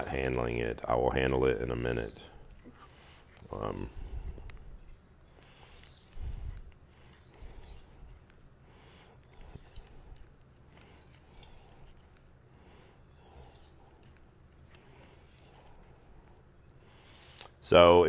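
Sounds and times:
knife scraping on whetstone: 1.1s - 3.8s, 4.8s - 11.9s, 12.9s - 14.0s, 16.4s - 17.6s.

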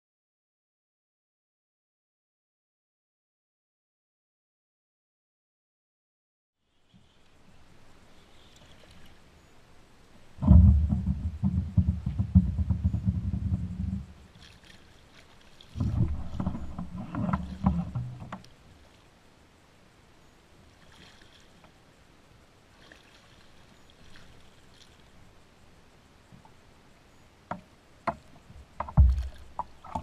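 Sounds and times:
kayak and fishing gear clattering: 10.4s - 18.6s, 27.5s - 30.0s.

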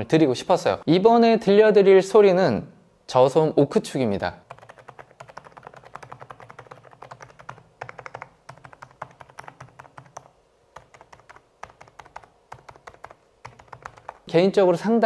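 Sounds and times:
soft mechanical keyboard keystrokes: 4.5s - 14.3s.

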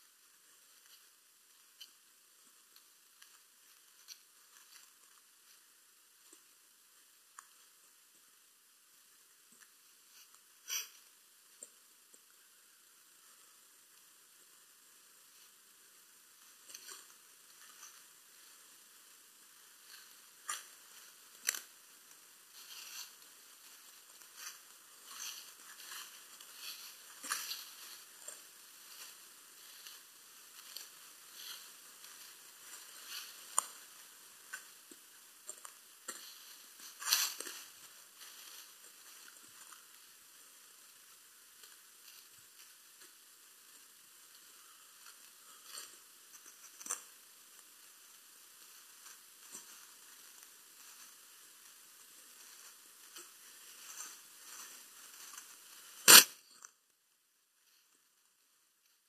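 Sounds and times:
sharp loud click: 56.1s - 56.4s.

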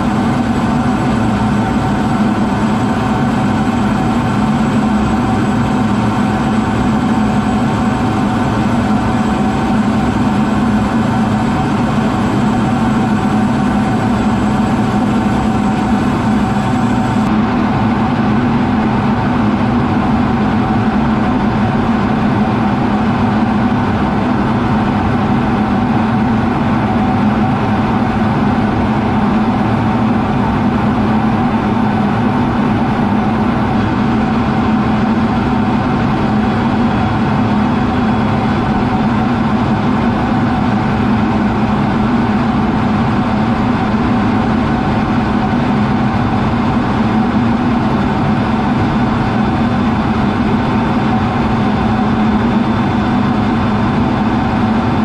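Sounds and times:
jet cockpit drone: 0.0s - 55.0s.

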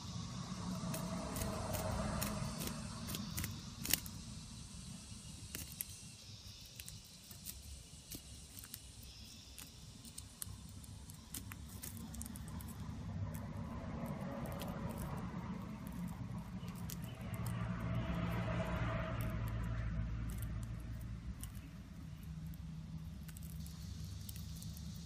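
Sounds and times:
low steady rumble: 0.0s - 25.0s
insect chewing shell crackles: 0.1s - 25.0s.

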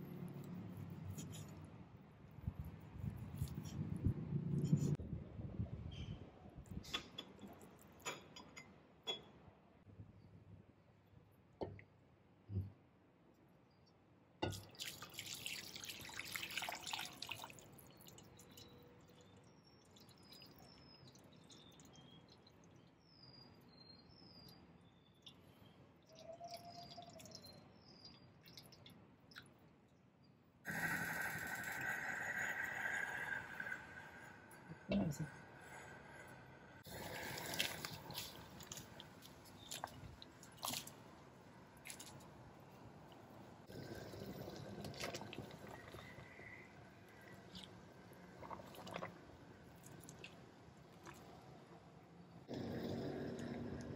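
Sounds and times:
soft plops and splashes: 14.4s - 18.4s, 37.5s - 41.2s.

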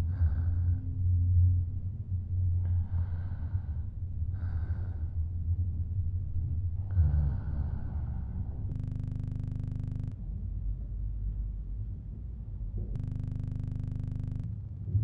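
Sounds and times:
woman breathing slowly: 0.0s - 1.2s, 2.5s - 5.6s, 6.8s - 9.1s.

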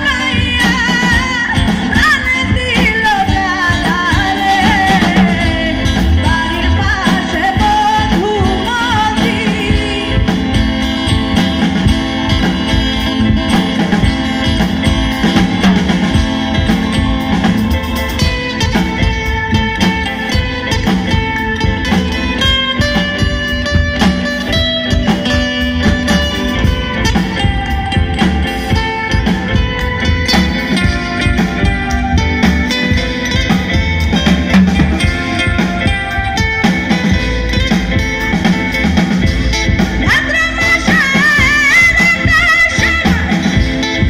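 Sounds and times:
woman singing: 0.0s - 10.7s, 40.0s - 43.8s
bass guitar: 0.0s - 44.0s
drum kit: 0.0s - 44.0s
electric guitar melody: 0.0s - 44.0s.

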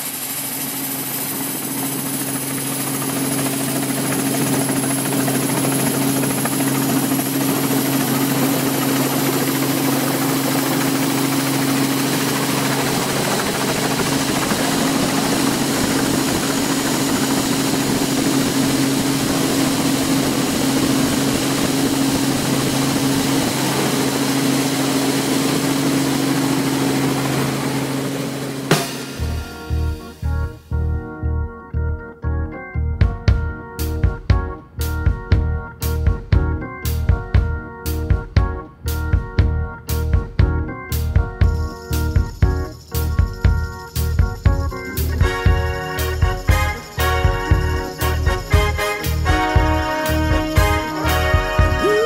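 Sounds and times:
aircraft engine drone: 0.0s - 31.2s, 33.6s - 52.0s.

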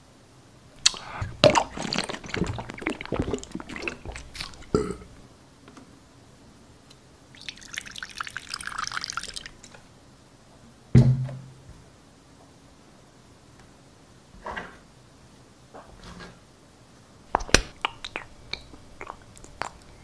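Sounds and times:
liquid pouring: 0.8s - 4.8s, 7.4s - 9.6s.

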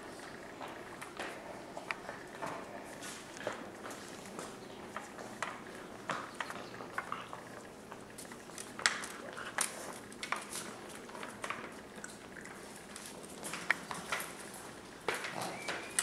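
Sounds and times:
puppy claws clicking on tile: 3.4s - 16.0s.

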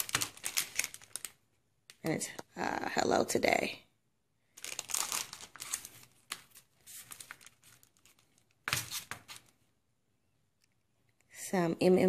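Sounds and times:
cellophane packets crinkling: 0.0s - 2.2s, 4.5s - 9.5s.

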